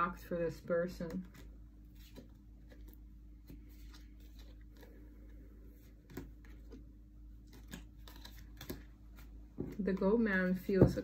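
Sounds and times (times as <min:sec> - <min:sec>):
low steady hum: 0:00.0 - 0:11.0
cards tapping and sliding: 0:05.8 - 0:06.8, 0:07.4 - 0:11.0.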